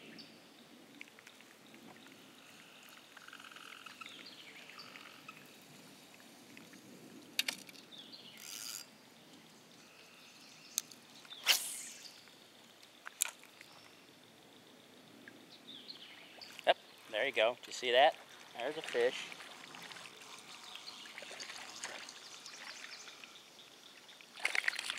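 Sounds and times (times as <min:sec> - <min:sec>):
lure splashing on water: 0:24.2 - 0:24.9.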